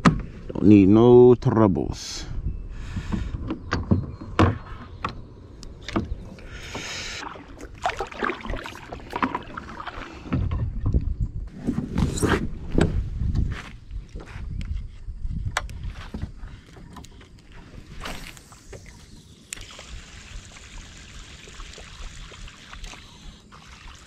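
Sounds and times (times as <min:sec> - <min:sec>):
paddle swishing water: 0:05.9 - 0:10.8.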